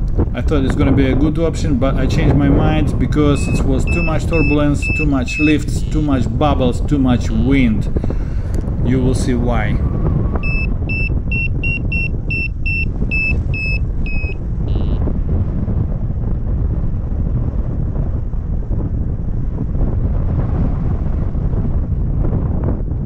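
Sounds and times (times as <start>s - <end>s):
wind rush on microphone: 0.0s - 23.0s
variometer beeping: 3.3s - 5.6s, 10.4s - 14.4s.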